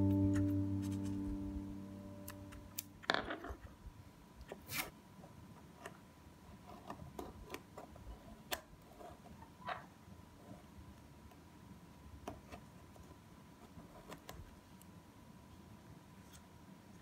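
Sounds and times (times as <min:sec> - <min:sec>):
music chord: 0:00.0 - 0:03.0.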